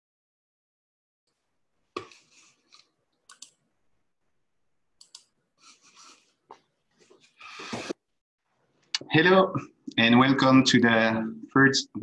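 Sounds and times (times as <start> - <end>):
faint clicks: 2.0 - 3.6, 5.0 - 5.3.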